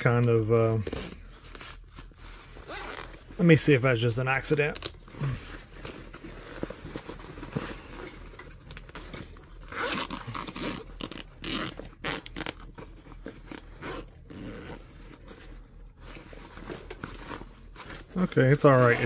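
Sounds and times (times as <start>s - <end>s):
fabric backpack rustling and scraping: 0.7s - 3.4s, 4.9s - 19.0s
zipper being worked: 0.8s - 3.3s, 9.6s - 18.2s, 18.8s - 19.0s.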